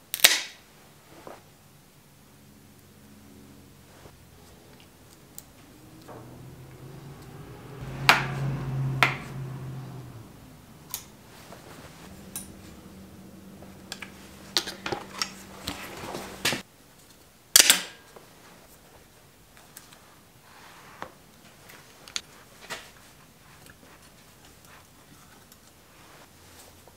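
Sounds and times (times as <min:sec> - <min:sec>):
low steady hum: 0:00.7 - 0:16.6.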